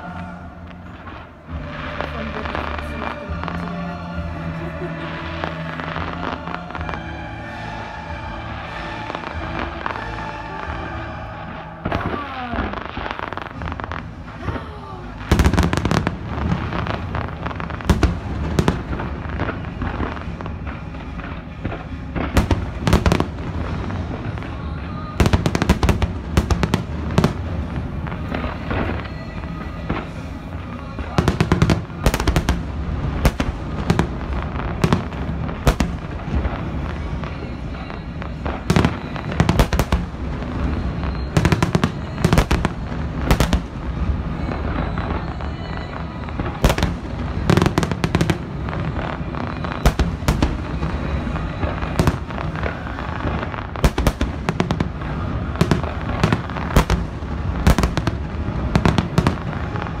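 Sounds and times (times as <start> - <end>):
fireworks bangs: 0.0 - 60.0
steady background din: 0.0 - 60.0.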